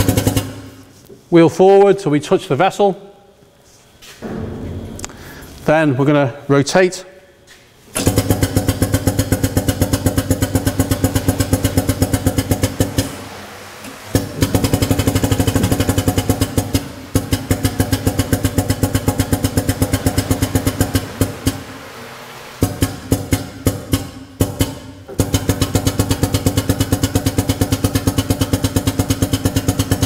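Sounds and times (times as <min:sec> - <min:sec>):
hydraulic power unit pulsing: 0:04.0 - 0:06.5, 0:07.4 - 0:30.0.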